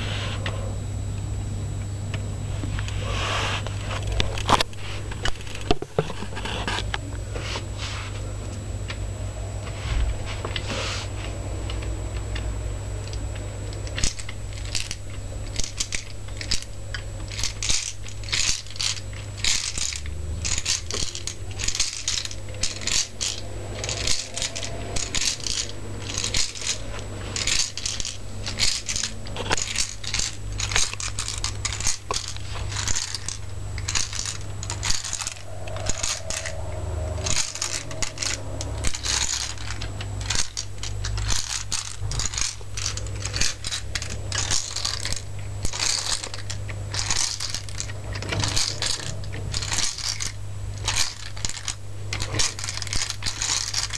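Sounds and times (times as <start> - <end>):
low steady hum: 0.0 - 53.9
plastic gears clicking and clattering: 12.4 - 36.6, 37.2 - 53.9.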